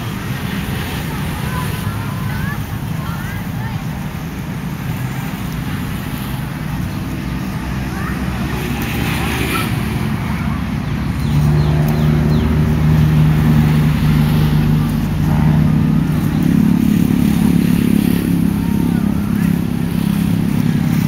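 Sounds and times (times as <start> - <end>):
vehicle engine running: 0.0 - 21.0.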